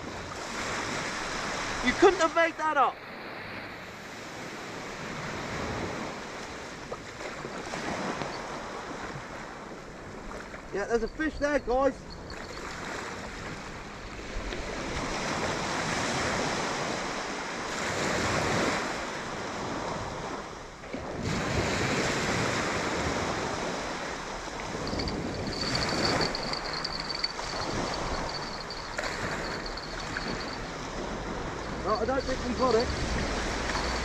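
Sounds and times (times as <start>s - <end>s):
wind on microphone: 19.5s - 34.0s
faint high whine: 24.7s - 34.0s.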